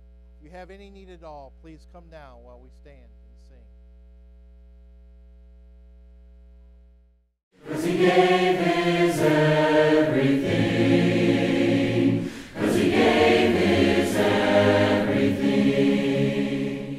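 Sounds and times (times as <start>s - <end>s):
choir singing in harmony: 7.6s - 16.9s.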